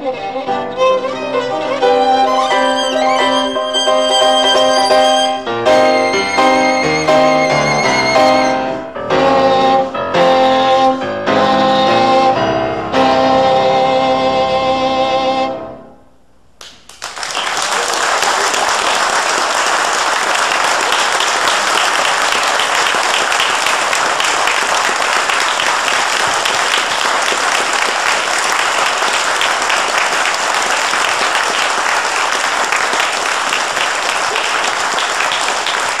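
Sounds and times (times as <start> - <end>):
audience applauding: 1.0 - 8.8, 16.6 - 36.0.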